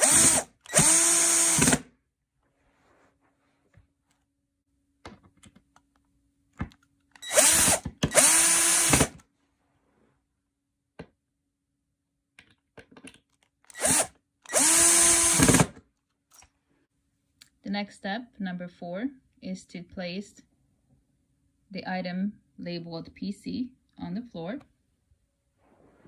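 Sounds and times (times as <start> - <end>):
power drill driving screws: 0.0 - 1.9, 7.2 - 9.2, 13.7 - 15.8.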